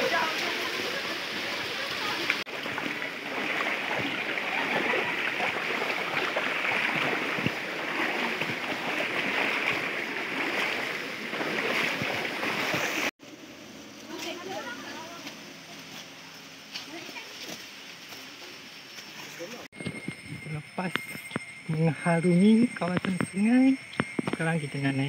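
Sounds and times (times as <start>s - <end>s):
stream water rushing: 0.0s - 13.1s.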